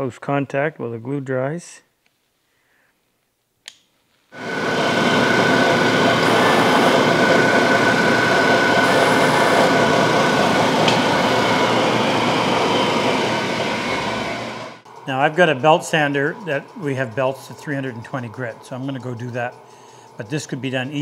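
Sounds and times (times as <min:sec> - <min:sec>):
disc sander running with whine: 0:04.4 - 0:21.0.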